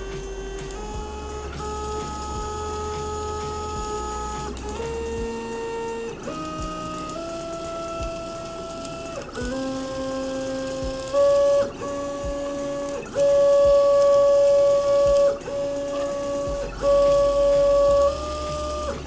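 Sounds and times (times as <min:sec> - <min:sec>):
crackling rattle of ball bearings: 0:00.0 - 0:19.0
stepper motors whining: 0:00.0 - 0:19.0.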